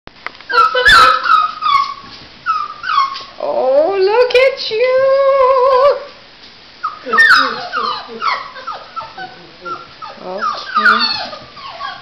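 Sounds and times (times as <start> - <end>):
puppies whining and yipping: 0.5 - 3.4, 6.8 - 12.0
puppy howling: 0.5 - 3.6, 6.8 - 12.0.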